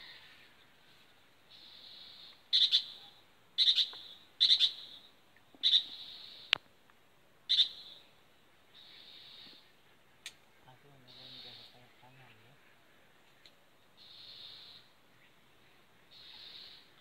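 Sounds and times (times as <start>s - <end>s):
bird harsh chirps: 1.5s - 6.5s, 7.5s - 8.1s, 8.8s - 9.7s, 11.0s - 11.9s, 14.0s - 14.9s, 16.1s - 17.0s.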